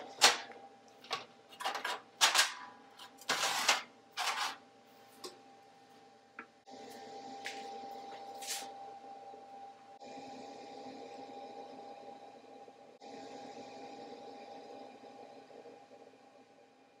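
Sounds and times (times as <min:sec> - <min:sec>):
metal clacks and scrapes: 0:00.0 - 0:04.6
faint steady hum: 0:00.0 - 0:17.0.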